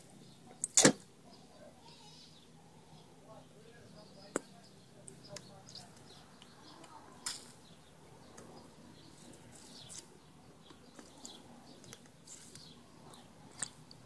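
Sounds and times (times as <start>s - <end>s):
faint bird chirps: 0.0s - 13.9s.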